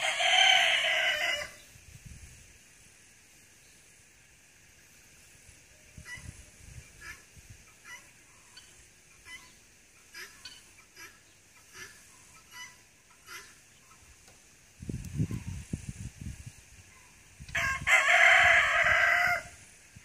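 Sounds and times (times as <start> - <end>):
guinea fowl calling: 5.8 - 14.3.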